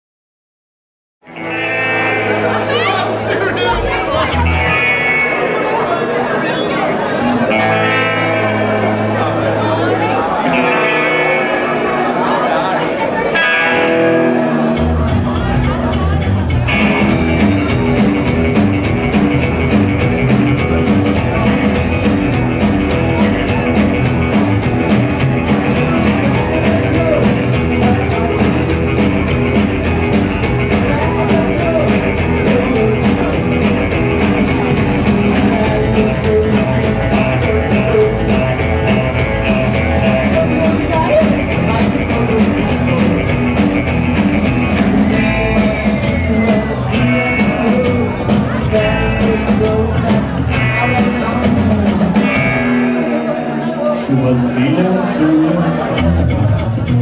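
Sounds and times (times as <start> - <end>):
electric guitar: 1.2 - 57.0
drum kit: 3.3 - 5.4, 14.4 - 53.4, 55.8 - 57.0
upright double bass: 14.5 - 53.7, 54.3 - 57.0.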